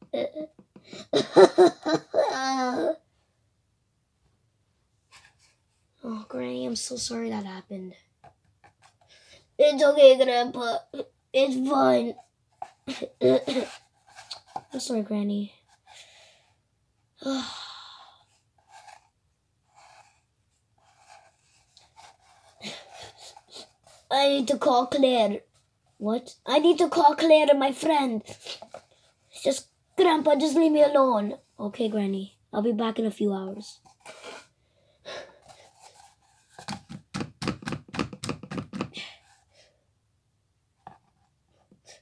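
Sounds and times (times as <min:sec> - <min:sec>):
faint rubbing of cardboard: 0:05.0 - 0:06.0, 0:08.2 - 0:09.2, 0:12.0 - 0:15.0, 0:18.4 - 0:24.7, 0:28.3 - 0:29.4, 0:33.8 - 0:34.6, 0:35.3 - 0:37.0
person sighing: 0:17.2 - 0:18.3
cardboard scraping and tapping: 0:35.7 - 0:39.0.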